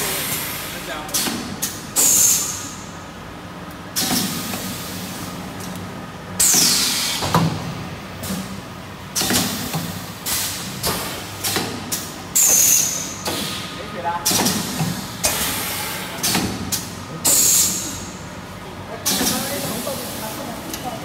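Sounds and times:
pneumatic air hisses: 2.0s - 2.8s, 12.4s - 13.6s, 17.2s - 18.1s.

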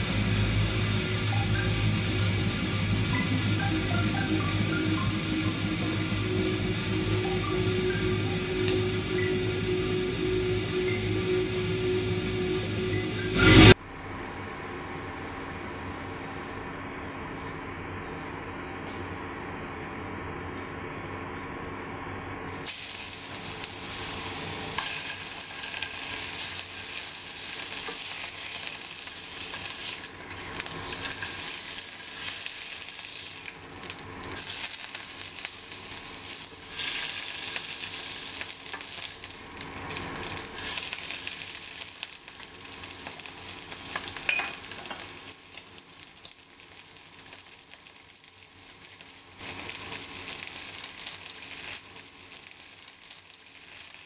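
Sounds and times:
food sizzling in a pan: 22.6s - 54.0s.

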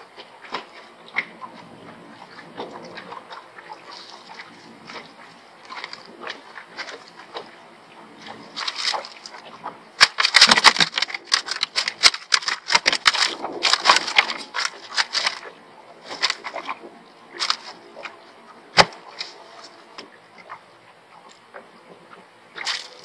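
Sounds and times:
gear clattering and clicking: 10.0s - 15.5s, 17.3s - 18.1s.

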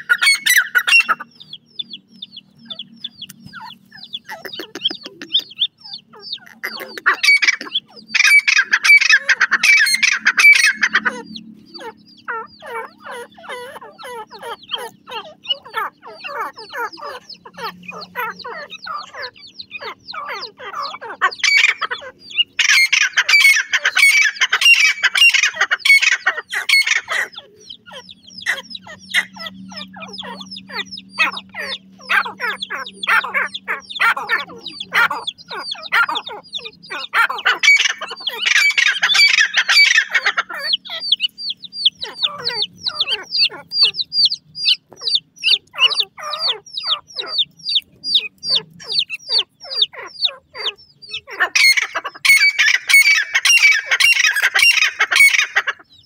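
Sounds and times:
bird harsh rapid calls: 0.0s - 56.0s
chick high falling peeps: 0.0s - 56.0s.

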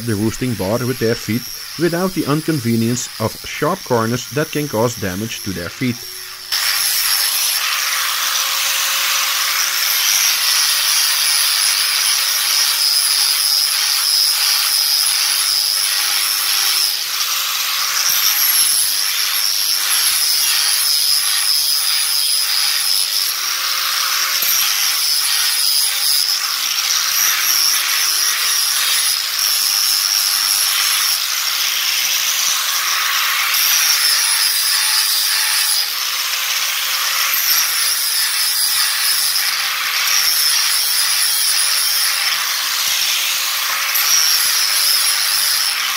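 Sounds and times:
angle grinder motor whine: 1.4s - 1.8s.

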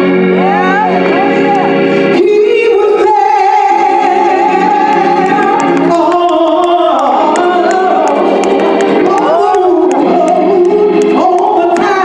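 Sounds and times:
organ chords: 0.0s - 12.0s
man singing into a microphone: 2.1s - 8.4s, 9.0s - 12.0s.

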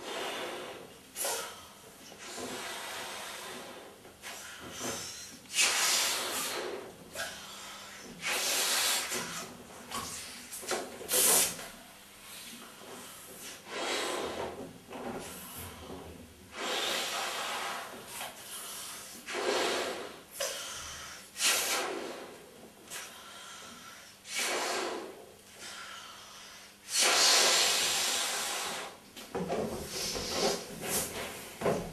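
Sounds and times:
puffs blown into balloon: 0.0s - 1.6s, 2.2s - 11.7s, 12.3s - 14.5s, 16.5s - 20.7s, 21.4s - 23.2s, 24.2s - 25.8s, 26.8s - 29.0s, 29.8s - 31.3s.

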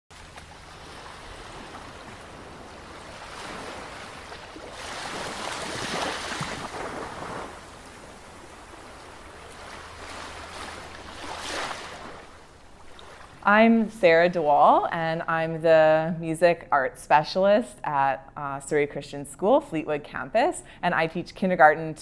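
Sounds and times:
sea waves washing in: 0.1s - 13.7s.

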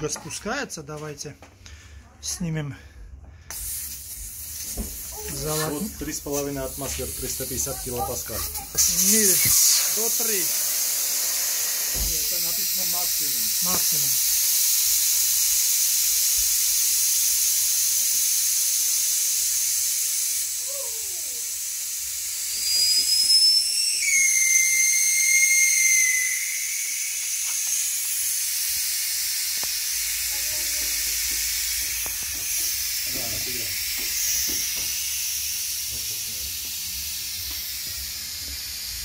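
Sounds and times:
air hissing from tyre valve: 3.4s - 39.0s
whistling tone: 22.5s - 27.9s.

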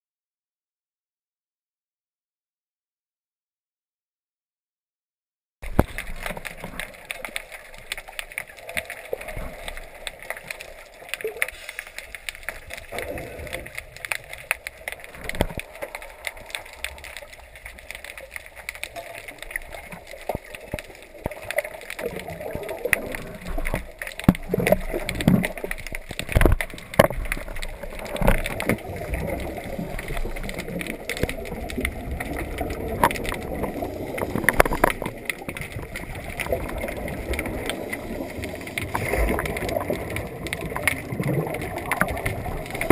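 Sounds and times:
underwater clicks crackling: 5.6s - 42.9s
watery hiss: 11.4s - 12.3s
bubbles gurgling: 12.2s - 42.9s.

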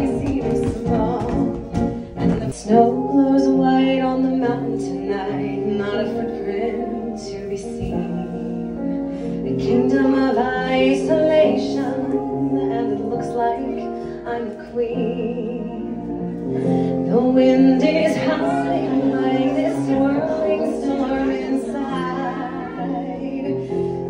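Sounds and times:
woman singing: 0.0s - 24.0s.

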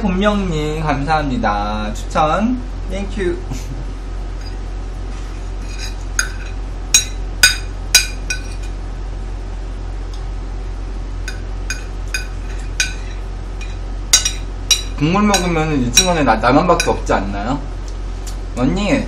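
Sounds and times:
low hum: 0.0s - 18.8s
cutlery clinking on a plate: 5.7s - 8.7s, 11.3s - 16.1s.

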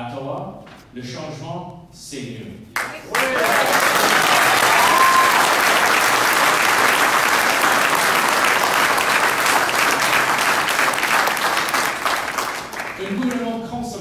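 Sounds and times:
crowd applauding: 2.8s - 13.6s.

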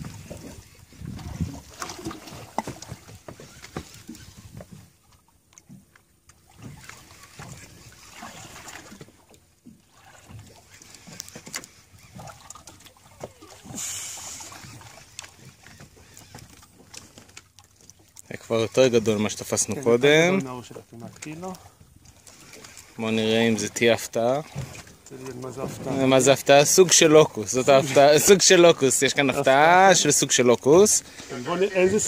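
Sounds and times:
water lapping against boat hull: 0.0s - 32.0s
brief hiss: 13.8s - 14.5s.

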